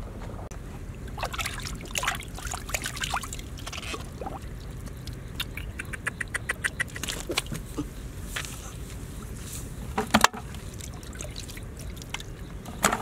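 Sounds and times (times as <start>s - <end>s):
water dripping and plopping: 0.8s - 7.6s, 10.0s - 12.9s
hands splashing in muddy water: 1.1s - 9.4s, 10.4s - 12.4s.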